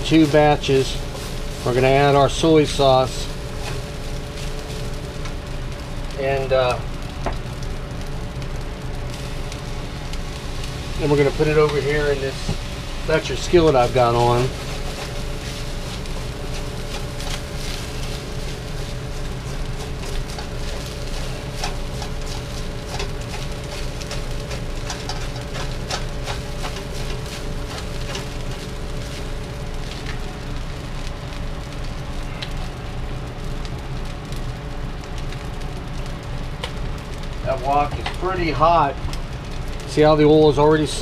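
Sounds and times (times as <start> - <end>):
rice sizzling in a wok: 0.0 - 41.0
spatula scraping and tapping pan: 19.8 - 28.3.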